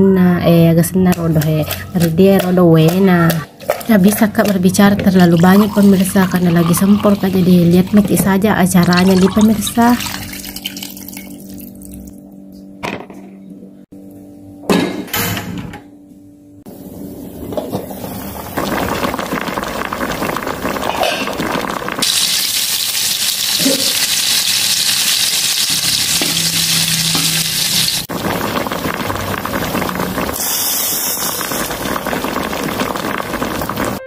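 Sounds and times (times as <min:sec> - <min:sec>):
shallots sizzling in hot oil: 0:18.6 - 0:34.0.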